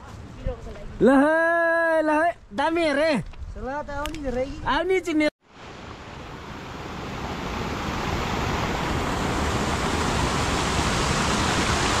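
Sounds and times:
stream rushing over rocks: 5.5 - 12.0.

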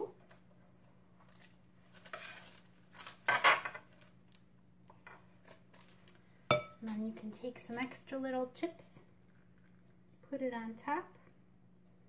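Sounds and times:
wooden spoon scraping batter: 1.2 - 2.8.

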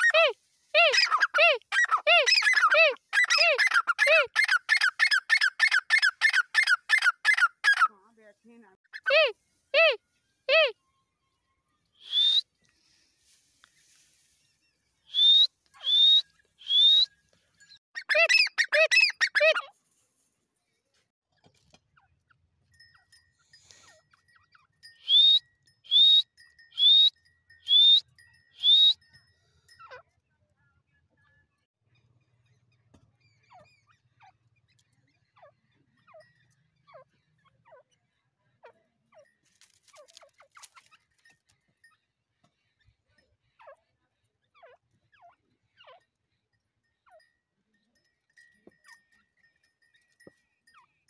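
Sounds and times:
francolin calling: 12.0 - 12.4, 15.1 - 17.1, 25.0 - 26.2, 26.8 - 28.0, 28.6 - 29.0
falling whistled bird calls: 15.1 - 17.1.

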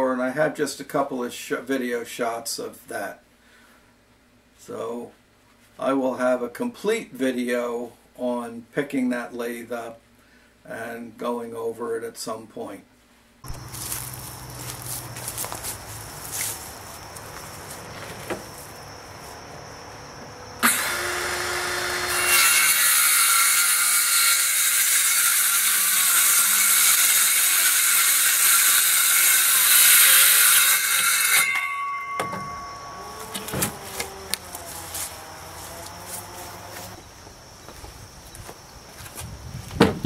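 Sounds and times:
circular saw cutting plywood: 20.6 - 31.6, 32.3 - 37.0
knocks of board handled: 39.7 - 40.0.

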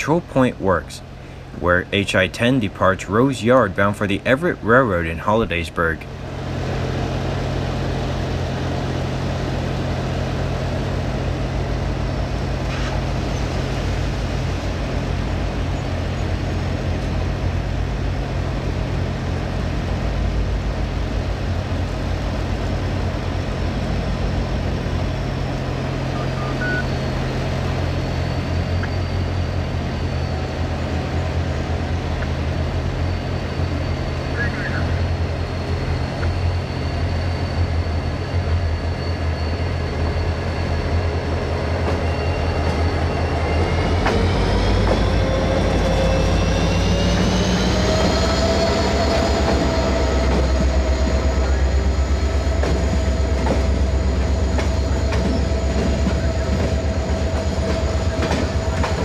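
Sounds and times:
diesel locomotive engine drone: 0.0 - 59.0
faint high whine: 21.7 - 59.0.

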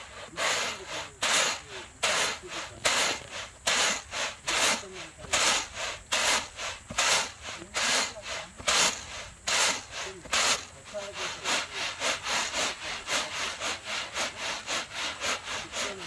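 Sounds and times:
beans rattling in winnowing basket: 0.1 - 11.8.

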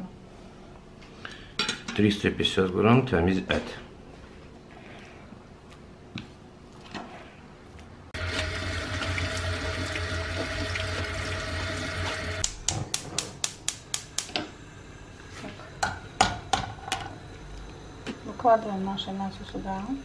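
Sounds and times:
kitchen tap running: 8.2 - 12.5
gas hob igniter clicking: 12.4 - 14.6.

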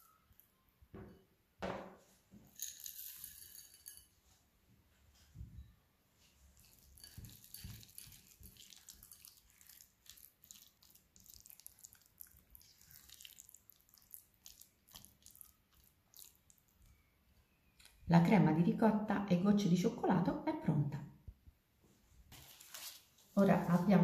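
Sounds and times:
spoon stirring wet mixture: 6.4 - 18.0.

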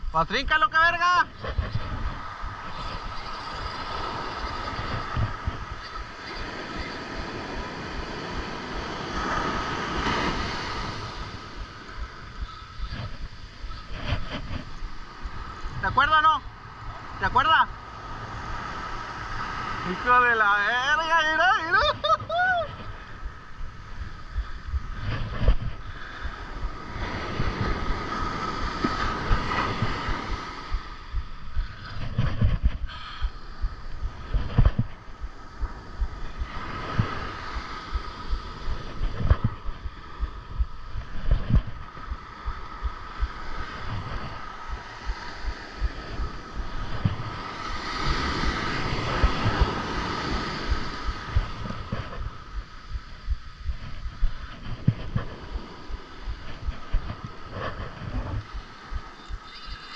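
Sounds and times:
breaking surf: 0.0 - 59.9
wind buffeting microphone: 0.0 - 59.9
fishing reel whine: 2.6 - 7.2, 59.2 - 59.9.

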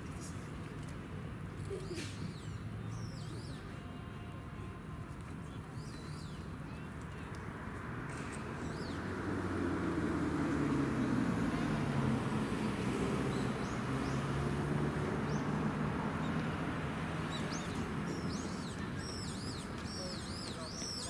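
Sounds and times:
street noise: 0.0 - 21.0
small birds chirping: 5.4 - 7.4, 17.2 - 21.0
vehicle passing: 7.6 - 18.8.

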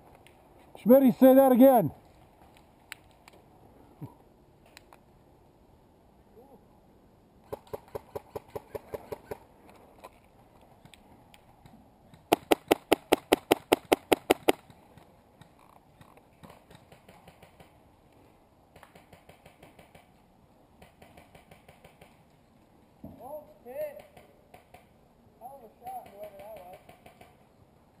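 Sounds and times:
airsoft rifle shots: 12.2 - 14.7.

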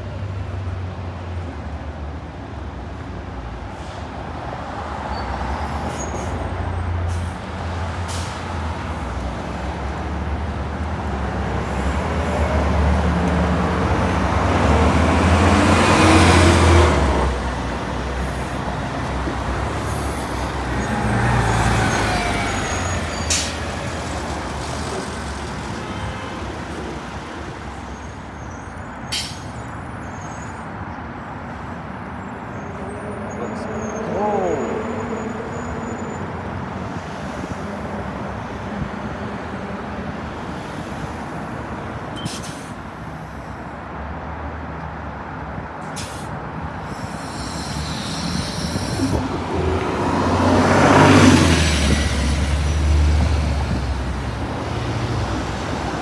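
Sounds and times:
buses driving past: 0.0 - 56.0
air brake hisses: 29.1 - 29.6, 42.2 - 42.8, 45.9 - 49.2.

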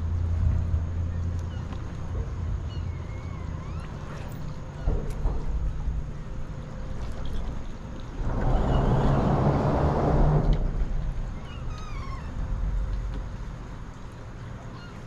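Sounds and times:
rushing sound with low hum: 0.0 - 14.7
water lapping against hull: 0.0 - 15.0
wind on microphone: 8.1 - 13.1.

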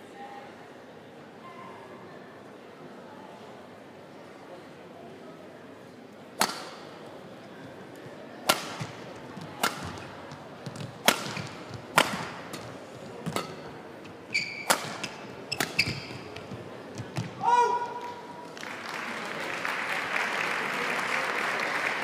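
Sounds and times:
racket hitting shuttlecock: 6.4 - 7.0, 8.4 - 17.4
shoes squeaking on court: 8.8 - 17.4.

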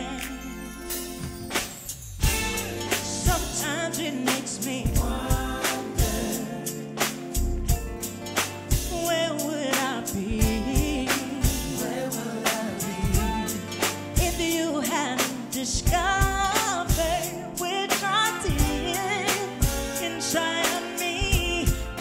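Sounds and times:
woman singing: 0.0 - 0.5, 2.9 - 7.4, 8.9 - 22.0
band playing: 0.0 - 22.0.

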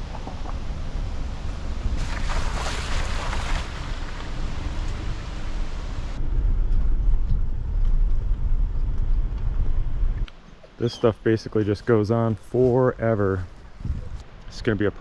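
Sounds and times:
car rumbling on dirt track: 0.0 - 10.3
wind hiss: 0.0 - 15.0.

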